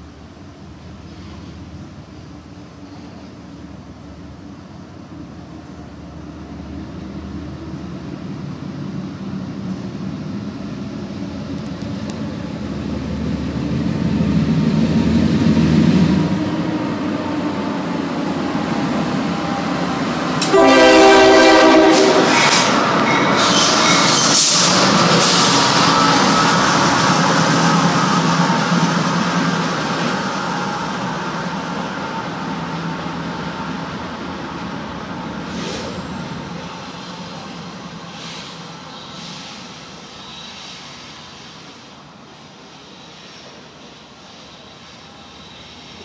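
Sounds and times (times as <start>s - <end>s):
diesel locomotive rumble: 0.0s - 42.9s
train wheel noise: 0.0s - 46.0s
train horn: 20.4s - 22.7s.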